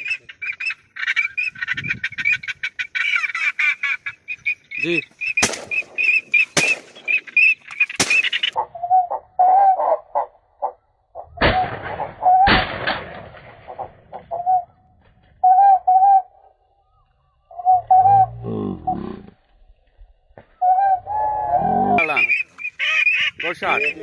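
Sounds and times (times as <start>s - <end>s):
high whistled duck calls: 2.9s - 10.8s
sharp cracks: 5.3s - 8.6s, 11.4s - 13.9s
quacking duck calls: 21.9s - 24.0s.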